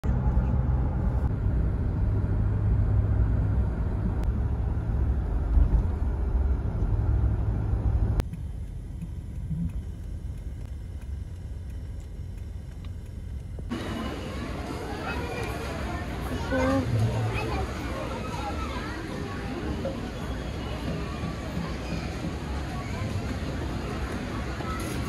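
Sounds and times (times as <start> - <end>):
road and engine rumble in car: 0.0 - 19.5
street background: 0.0 - 25.0.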